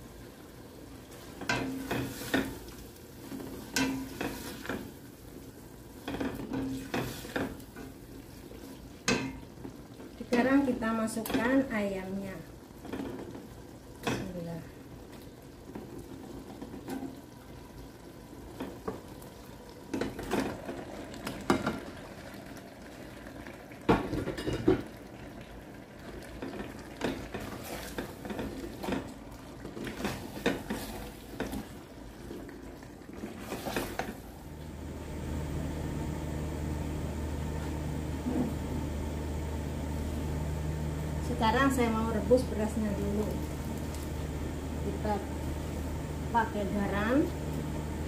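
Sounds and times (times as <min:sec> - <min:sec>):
gas stove hum: 0:00.0 - 0:15.3, 0:33.4 - 0:48.0
water starting to boil: 0:00.0 - 0:48.0.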